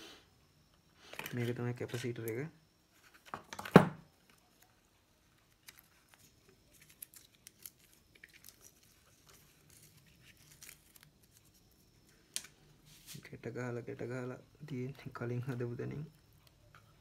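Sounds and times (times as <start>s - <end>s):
clicks and rustles of wires: 3.0s - 12.6s.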